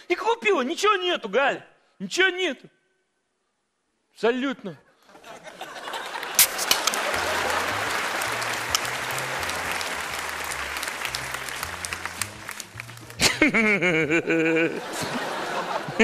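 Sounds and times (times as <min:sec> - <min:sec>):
audience applauding: 0:05.8 - 0:14.0
sharp snap: 0:06.4 - 0:07.0
bass line background music: 0:07.0 - 0:15.2.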